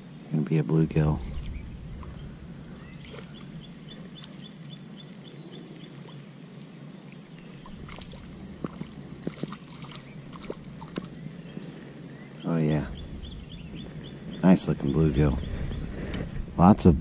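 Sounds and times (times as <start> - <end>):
high-pitched insect drone: 0.0 - 17.0
fish splashing: 7.6 - 11.2.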